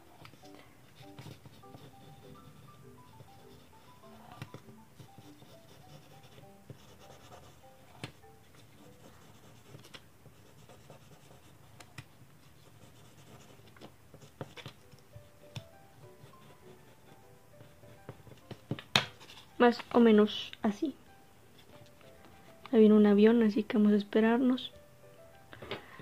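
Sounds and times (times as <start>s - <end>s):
faint background music: 0.0s - 26.0s
pencil scratching on paper: 0.2s - 11.9s, 12.5s - 14.7s, 16.1s - 18.3s, 19.1s - 19.6s.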